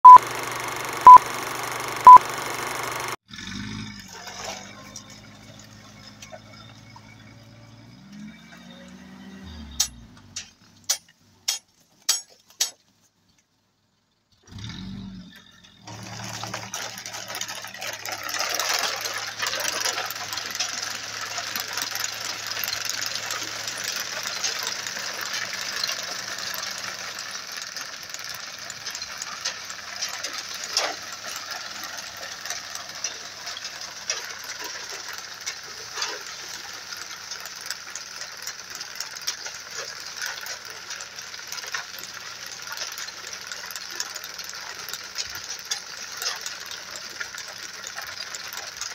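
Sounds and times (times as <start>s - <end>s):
truck engine humming low: 3.8s - 11.5s, 13.8s - 48.9s
machine clattering: 15.7s - 48.9s.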